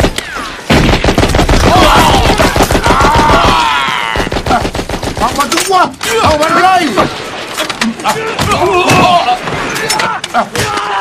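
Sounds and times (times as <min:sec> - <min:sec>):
machine-gun and rifle fire: 0:00.0 - 0:05.6.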